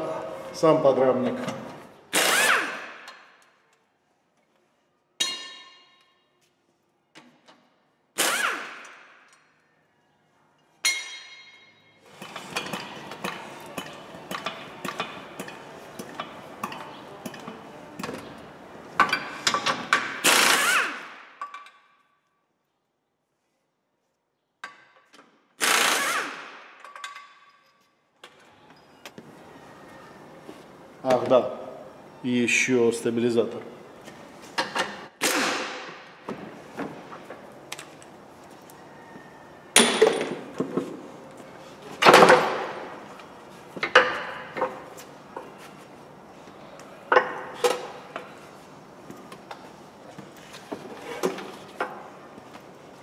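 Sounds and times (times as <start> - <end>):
impact wrench hammering: 5.2 - 5.9, 19.0 - 21.7
sharp metallic clanks: 5.2 - 6.2.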